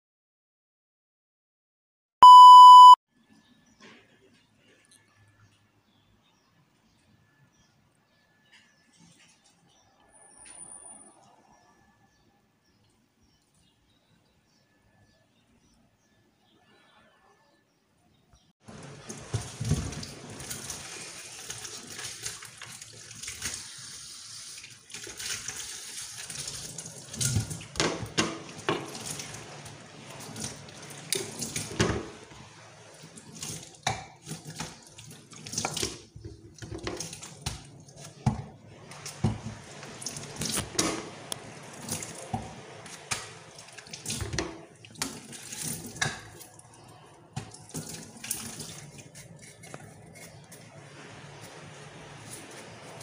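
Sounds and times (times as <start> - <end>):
tap running into sink: 35.5 - 41.1, 41.8 - 46.4.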